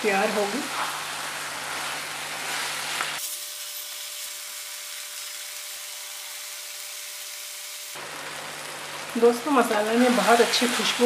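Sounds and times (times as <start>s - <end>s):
mushrooms sizzling in a frying pan: 0.0s - 11.0s
wooden spatula scraping a pan: 0.4s - 3.2s.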